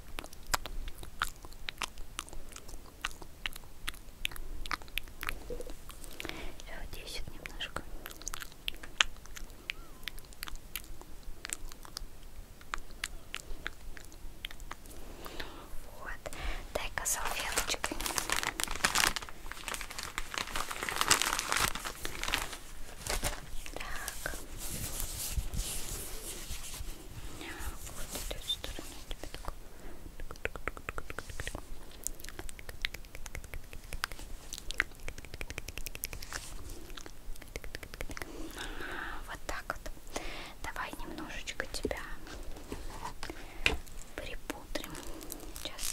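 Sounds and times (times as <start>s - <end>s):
soft clicks and crackles: 30.2s - 38.7s, 40.7s - 45.9s.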